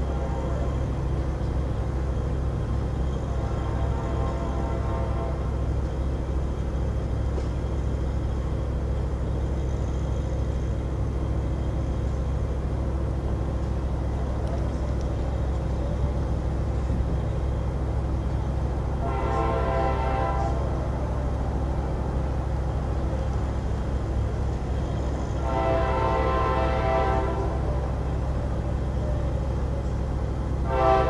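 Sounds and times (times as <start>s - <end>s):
train horn chord: 0.0s - 1.0s, 3.0s - 5.9s, 15.4s - 23.3s, 24.6s - 29.0s, 30.5s - 31.0s
steady low rumble: 0.0s - 31.0s.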